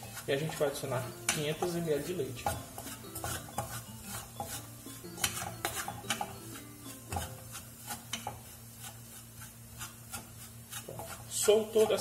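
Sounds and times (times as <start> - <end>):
wooden spoon scraping a saucepan: 0.0 - 12.0.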